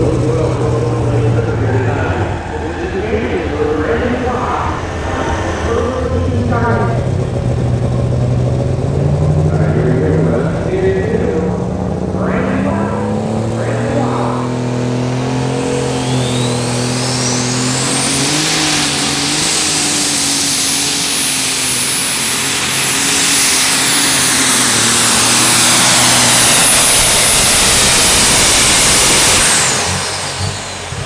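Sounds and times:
diesel engine running hard: 0:00.0 - 0:31.0
high turbo whistle: 0:15.5 - 0:30.9.

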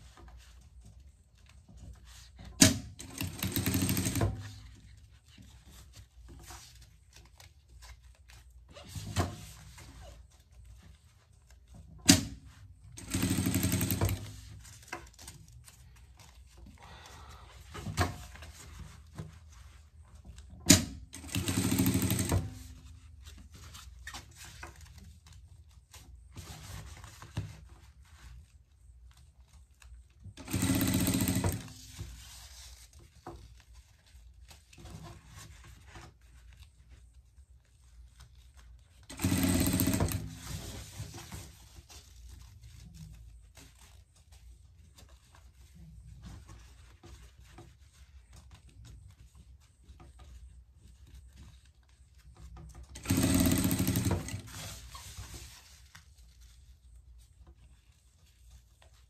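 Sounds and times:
sewing machine stitching: 0:02.5 - 0:04.6, 0:12.1 - 0:14.4, 0:20.7 - 0:22.8, 0:30.4 - 0:32.0, 0:39.1 - 0:41.0, 0:52.8 - 0:55.6
fabric rustling: 0:03.2 - 0:20.6, 0:21.6 - 0:59.0.

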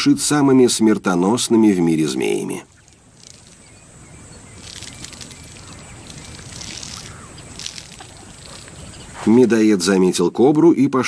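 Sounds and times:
snake rustling through twigs and sand: 0:01.8 - 0:10.1.

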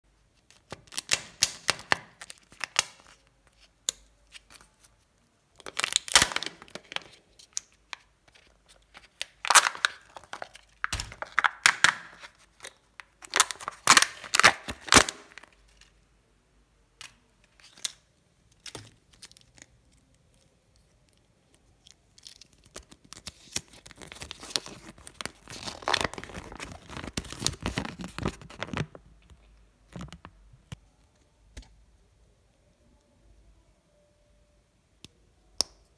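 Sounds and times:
foil seal tearing and crinkling: 0:05.6 - 0:06.8, 0:09.2 - 0:12.2, 0:13.2 - 0:15.5, 0:22.2 - 0:28.9
paper leaflet crinkling: 0:21.6 - 0:29.0.

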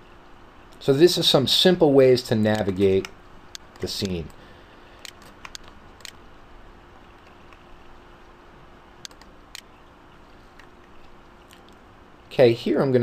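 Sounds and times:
low steady hum: 0:00.0 - 0:13.0
computer mouse clicks: 0:05.0 - 0:06.2, 0:09.0 - 0:09.7.

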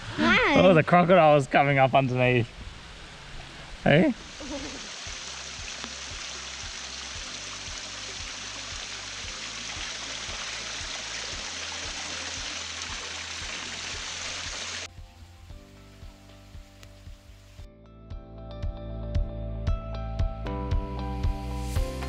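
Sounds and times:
faint background music: 0:03.8 - 0:19.4
waterfall splashing into pool: 0:03.9 - 0:14.9.

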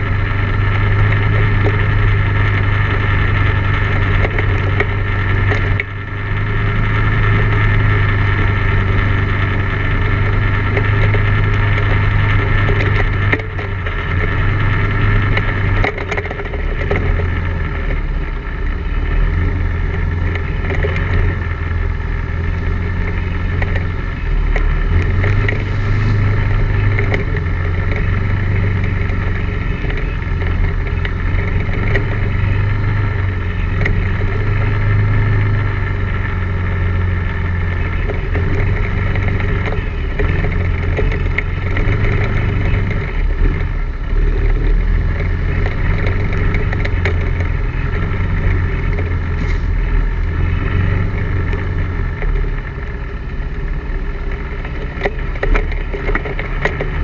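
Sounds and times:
quad bike engine droning: 0:00.0 - 0:57.0
small knocks and rattles: 0:10.3 - 0:18.2, 0:54.0 - 0:57.0.

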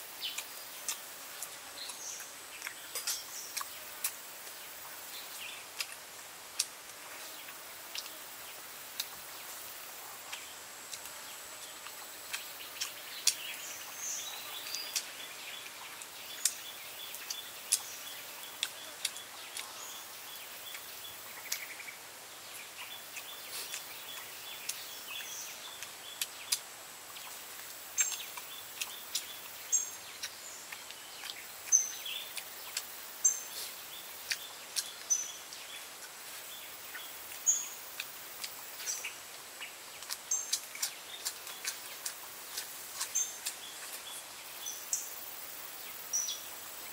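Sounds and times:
steady high hiss: 0:00.0 - 0:46.9
small bird chirping: 0:01.8 - 0:05.9, 0:10.3 - 0:26.6, 0:27.2 - 0:46.9
tearing and chewing food: 0:33.6 - 0:35.1, 0:35.9 - 0:44.3.

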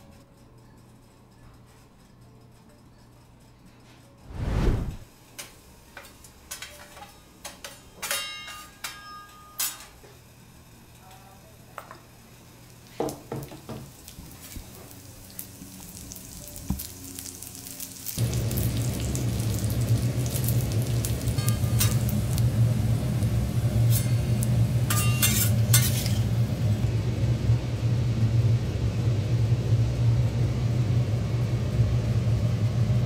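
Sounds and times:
fish sizzling in oil: 0:12.6 - 0:26.8
metal utensils clicking and scraping: 0:21.4 - 0:22.1, 0:23.8 - 0:26.3.

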